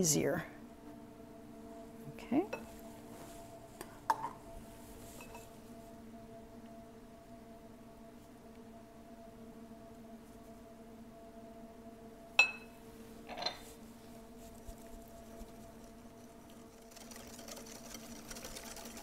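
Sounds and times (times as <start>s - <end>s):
whisk beating batter: 14.5s - 19.0s.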